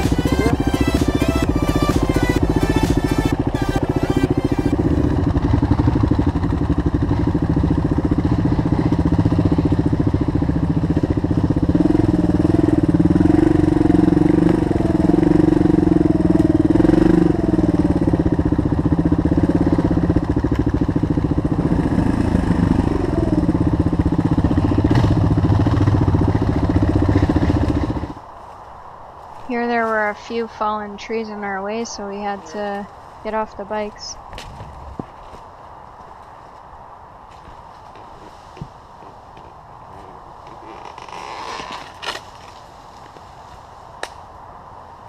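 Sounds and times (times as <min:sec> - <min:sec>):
motorcycle engine revving: 0:00.0 - 0:28.3, 0:37.4 - 0:42.6.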